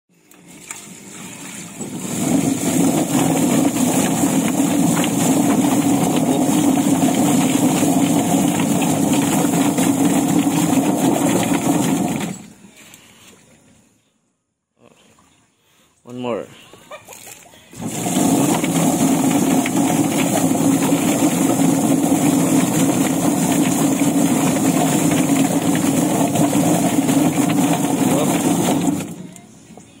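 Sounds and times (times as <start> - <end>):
drum plucker mechanical churn: 1.1 - 12.4, 17.7 - 29.3.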